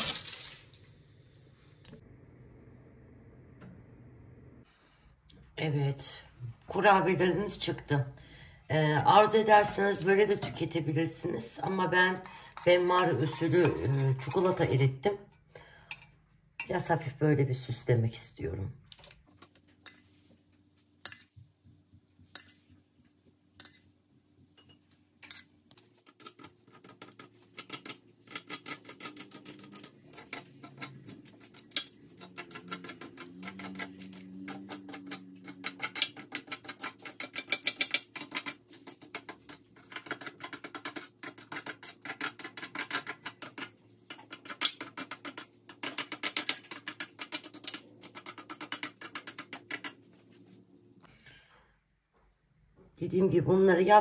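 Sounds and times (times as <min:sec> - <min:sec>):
cutlery clinking on metal bowl: 0:24.6 - 0:25.5, 0:31.6 - 0:41.0.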